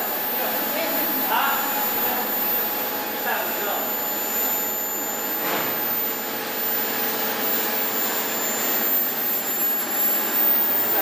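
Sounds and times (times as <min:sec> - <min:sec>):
furnace rushing machine noise: 0:00.0 - 0:11.0
thin high-pitched whine: 0:00.0 - 0:11.0.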